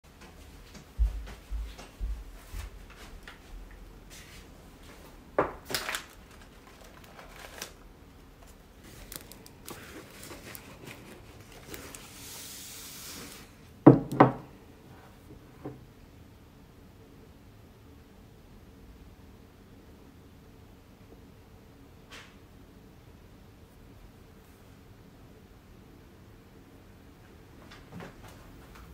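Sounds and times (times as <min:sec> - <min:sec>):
rustling of bag or paper: 0:04.2 - 0:13.6
knocks on wooden tabletop: 0:13.9 - 0:14.4
low thumps on wooden table: 0:13.9 - 0:14.4.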